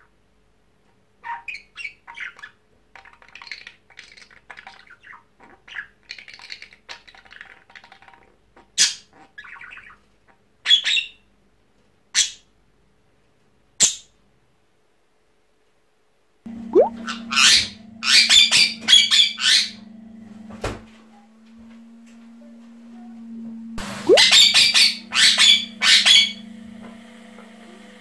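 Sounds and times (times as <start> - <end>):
budgerigar warbling and chattering: 24.1 - 26.4
loud sharp bird calls: 24.1 - 26.4
mimicked parakeet calls: 24.1 - 26.4.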